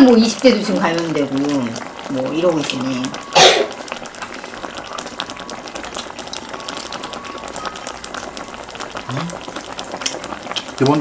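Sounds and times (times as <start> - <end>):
gas stove hiss: 0.0 - 11.0
stew bubbling and popping: 0.0 - 11.0.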